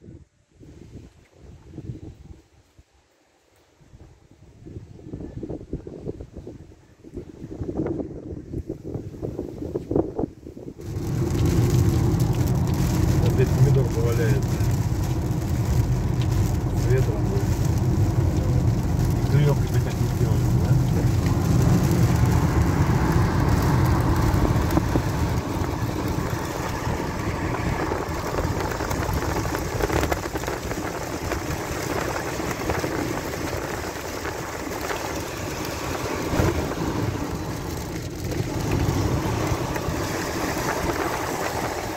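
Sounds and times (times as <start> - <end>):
low rumble: 10.6 - 41.9
heavy rain on car roof: 10.8 - 41.9.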